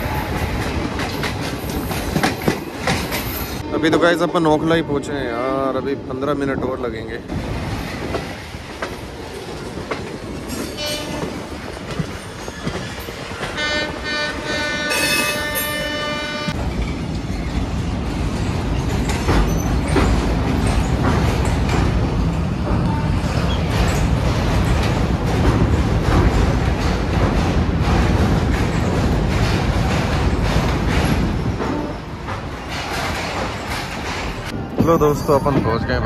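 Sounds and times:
train wheels rumbling: 0.0 - 36.0
wheels clacking over rail joints: 0.2 - 3.6, 7.7 - 36.0
train horn: 10.8 - 11.4, 13.5 - 16.6.

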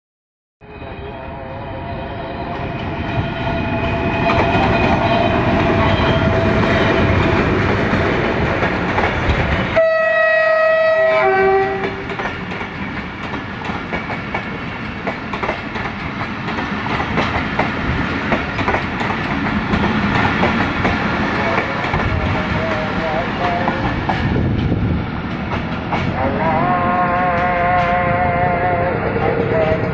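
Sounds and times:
diesel locomotive running past: 0.6 - 29.9
train wheels clicking over rail joints: 4.2 - 9.8, 11.8 - 26.2
multi-note train air horn: 9.8 - 12.1.

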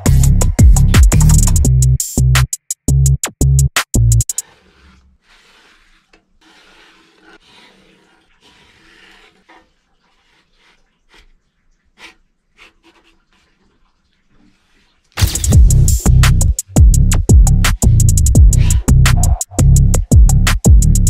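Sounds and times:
spatula scraping griddle: 4.3 - 11.3.

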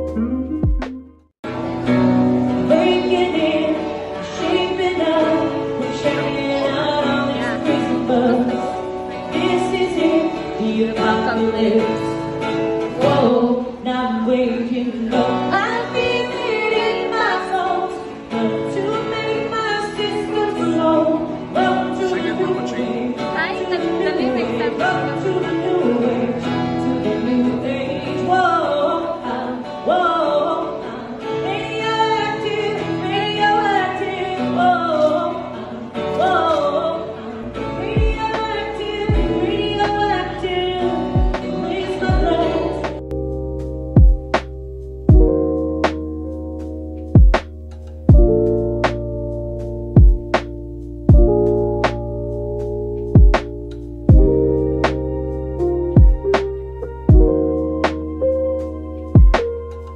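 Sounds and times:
acoustic guitar: 0.0 - 59.9
woman singing: 2.6 - 43.0.

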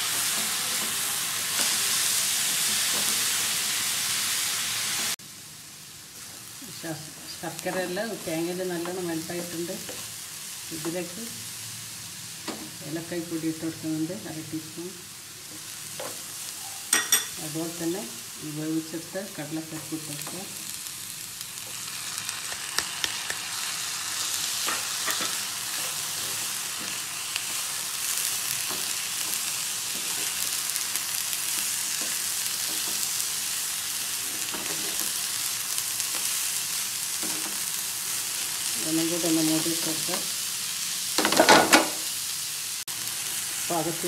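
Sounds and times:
filling sizzling in frying pan: 0.0 - 44.0.

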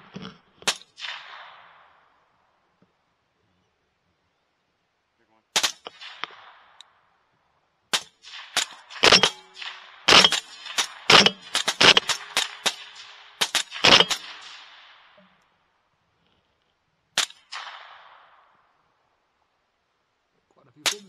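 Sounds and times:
rapid rifle shots with echo: 0.0 - 2.4, 5.6 - 6.9, 7.9 - 15.2, 17.2 - 18.9, 20.8 - 21.0.

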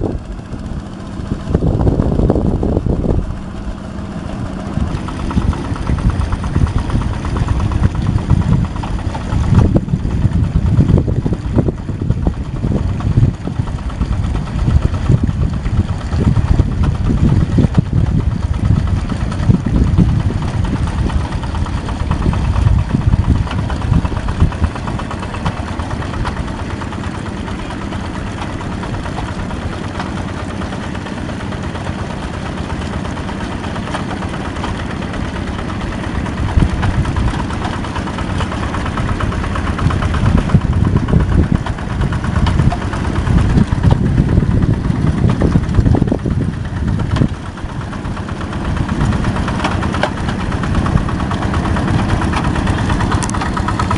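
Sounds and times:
diesel engine chugging: 0.0 - 53.9.

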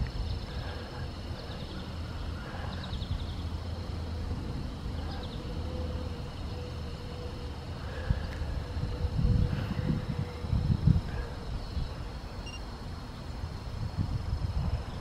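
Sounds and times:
faint bird chirps: 11.2 - 12.7.

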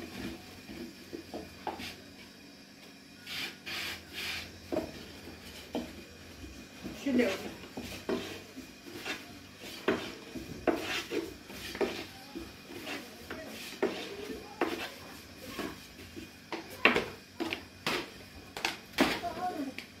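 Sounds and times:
rolling pin rubbing dough: 0.1 - 2.1, 3.2 - 18.1.

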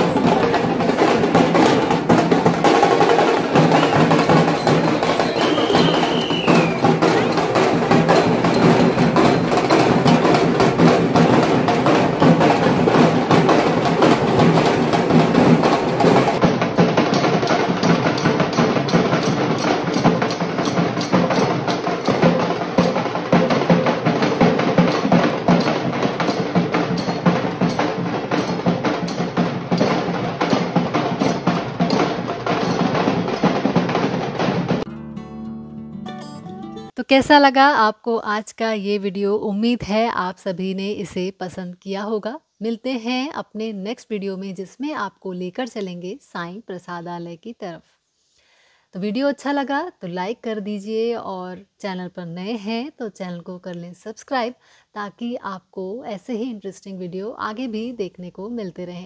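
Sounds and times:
clattering hand percussion: 0.0 - 34.9
drums: 0.0 - 35.0.

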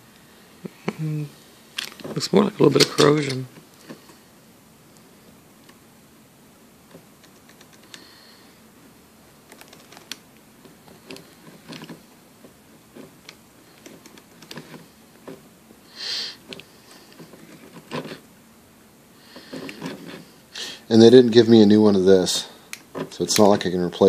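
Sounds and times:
hands handling plastic connector: 9.5 - 15.4.

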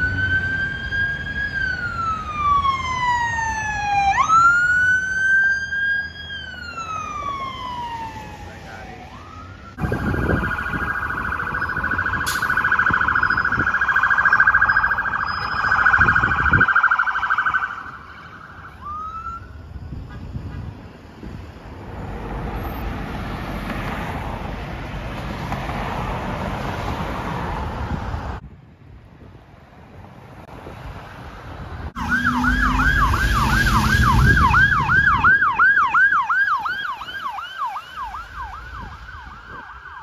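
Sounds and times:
police siren yelping: 0.0 - 19.7, 32.0 - 40.0
siren rising whoop: 0.0 - 19.7, 32.0 - 40.0
passing road traffic: 0.0 - 40.0.

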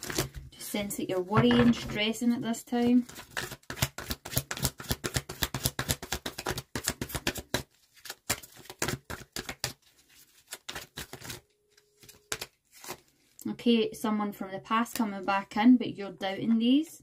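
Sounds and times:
cards being shuffled: 2.9 - 13.2.

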